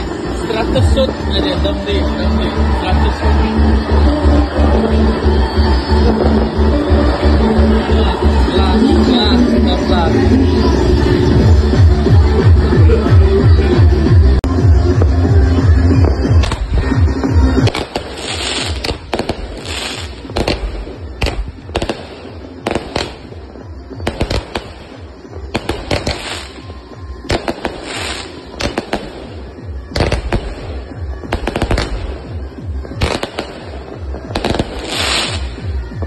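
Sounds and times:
hissing crackle of fireworks: 0.0s - 11.8s, 14.4s - 36.0s
fireworks banging: 14.4s - 36.0s.

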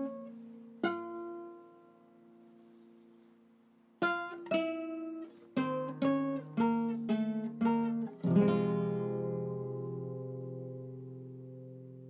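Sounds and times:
acoustic guitar plucked notes: 0.0s - 3.4s, 4.0s - 12.0s
strummed guitar chord ringing: 4.0s - 12.0s.

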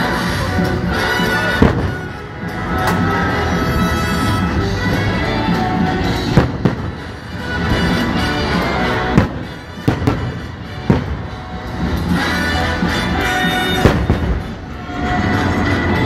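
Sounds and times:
music playing: 0.0s - 16.0s.

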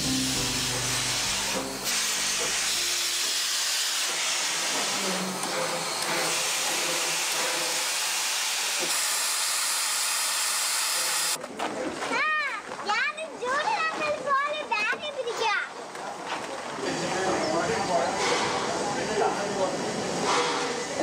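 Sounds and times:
steam locomotive hissing steam: 0.0s - 9.2s, 18.1s - 21.0s.

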